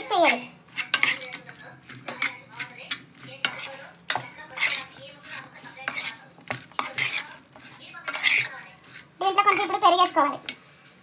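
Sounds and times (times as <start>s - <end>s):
scrapes and knocks against pot: 0.0s - 9.8s
hand mixing chicken in pot: 0.0s - 10.6s.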